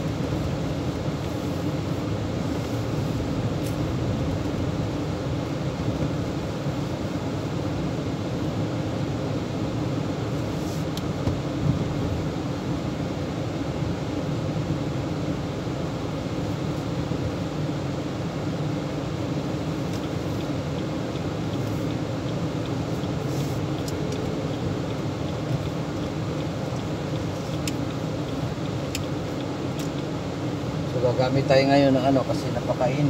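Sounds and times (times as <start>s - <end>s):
car engine and road noise: 0.0s - 33.0s.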